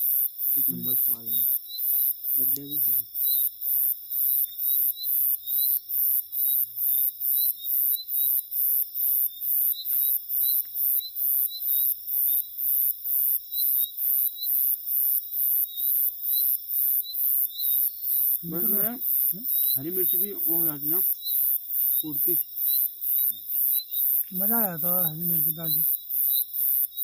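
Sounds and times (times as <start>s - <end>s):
insects chirping: 0.0s - 27.0s.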